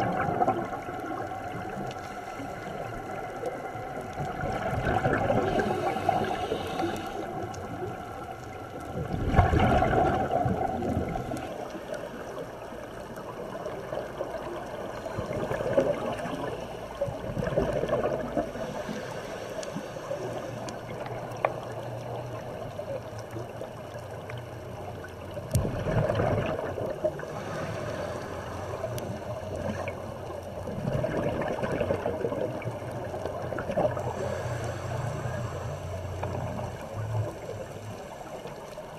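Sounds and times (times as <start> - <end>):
gurgling air bubbles underwater: 0.0 - 19.0, 20.2 - 27.6, 28.6 - 34.4
diver breathing through regulator: 5.3 - 7.6, 18.4 - 20.9, 27.2 - 30.0, 34.0 - 36.9.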